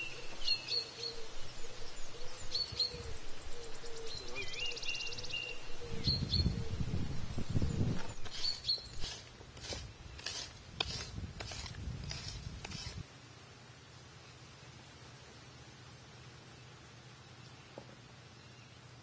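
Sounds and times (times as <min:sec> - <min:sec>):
bird chirping: 0:00.0 - 0:06.9, 0:07.5 - 0:09.2
knife chopping ground and plants: 0:07.9 - 0:13.0.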